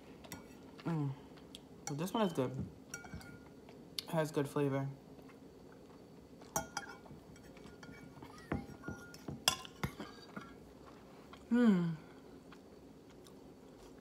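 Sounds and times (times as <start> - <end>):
metal fork clinking on ceramic bowl: 2.9 - 3.5, 6.6 - 10.0.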